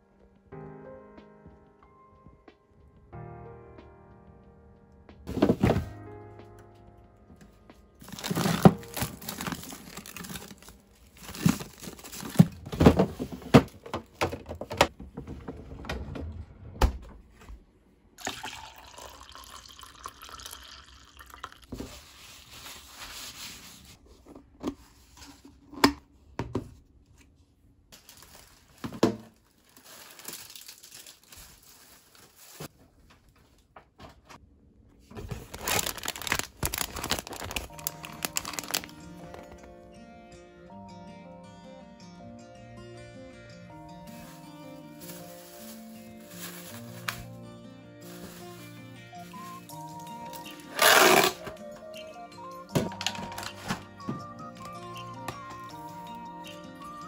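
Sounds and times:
plastic bags crinkling: 8.0 - 13.8, 28.0 - 32.7, 35.2 - 39.7, 44.1 - 47.3, 48.0 - 51.4
liquid pouring: 18.2 - 21.7.

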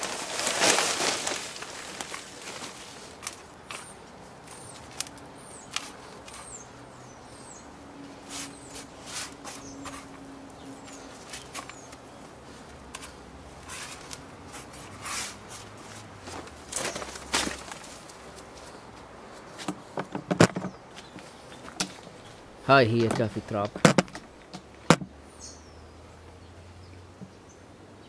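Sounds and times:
soil crunching and scraping: 0.0 - 6.6, 10.8 - 18.8
bird chirping: 3.7 - 12.3, 25.3 - 28.0.

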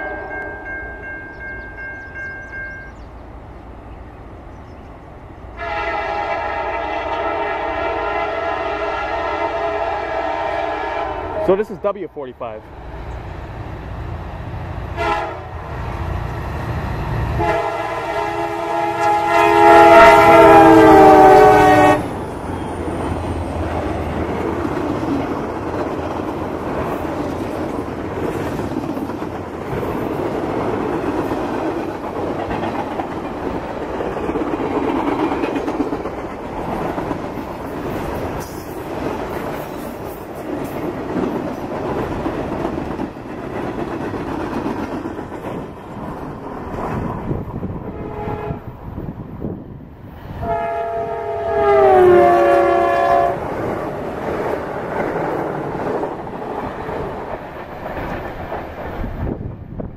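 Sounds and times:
train wheels rolling on rails: 0.0 - 50.6, 51.3 - 59.9
locomotive horn blast: 5.6 - 11.8, 15.0 - 15.7, 17.3 - 22.1, 47.8 - 48.8, 50.4 - 53.5.

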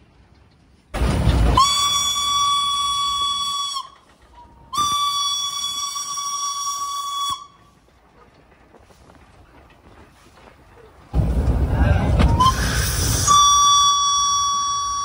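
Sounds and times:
rush of steam: 1.0 - 15.0
steam whistle blasts: 1.5 - 4.1, 4.7 - 7.6, 12.3 - 15.0.

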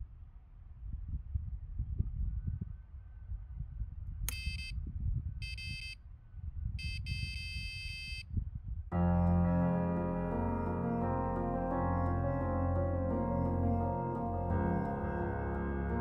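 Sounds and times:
bite alarm beeping: 4.3 - 4.7, 5.4 - 6.0, 6.8 - 8.2
piano music: 8.9 - 16.0.

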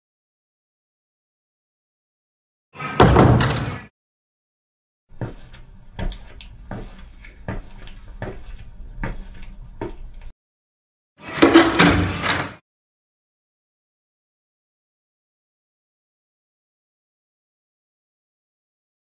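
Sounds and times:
footsteps on hard floor: 5.1 - 10.3.

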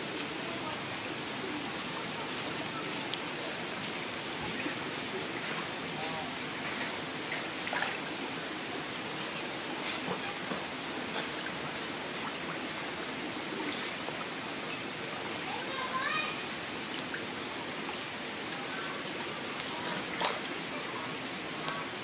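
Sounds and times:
small sharp splashes: 6.6 - 8.1, 19.4 - 21.0
animal swimming through water: 9.7 - 16.4.

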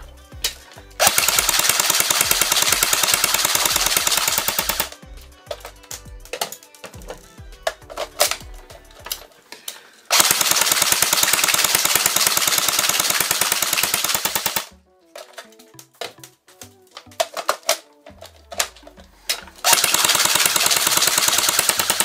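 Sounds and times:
background music with a beat: 0.0 - 9.8, 14.6 - 19.8
airsoft gun full-auto burst: 1.0 - 5.0, 10.1 - 14.7, 19.6 - 22.0.

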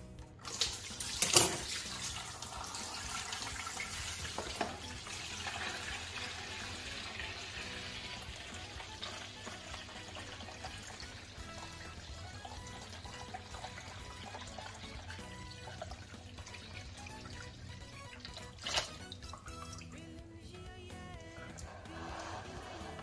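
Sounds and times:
water splashing into plastic basin: 0.4 - 4.8, 18.2 - 19.8.

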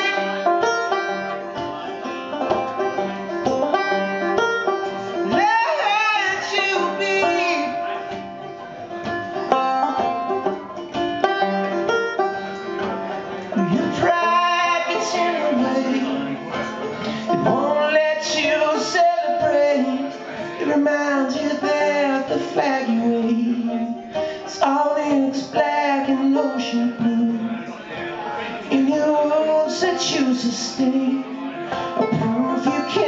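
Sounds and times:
banjo picking: 0.0 - 33.0
man singing: 5.2 - 8.1, 13.5 - 33.0.

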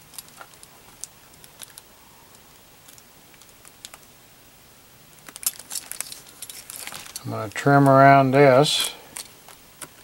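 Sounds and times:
plastic film crinkling: 0.0 - 1.9, 5.2 - 8.0.

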